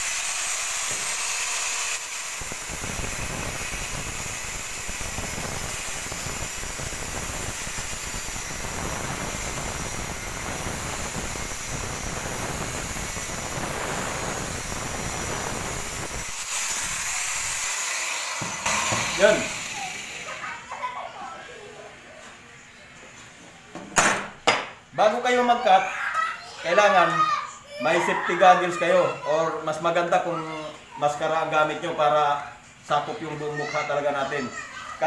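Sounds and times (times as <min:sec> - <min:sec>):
angle grinder cutting steel: 0:00.0 - 0:20.6.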